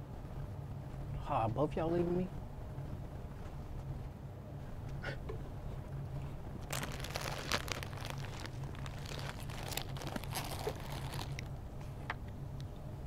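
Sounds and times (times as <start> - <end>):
steady low hum: 0.0 - 13.0
bag crinkling and rustling: 6.6 - 11.6.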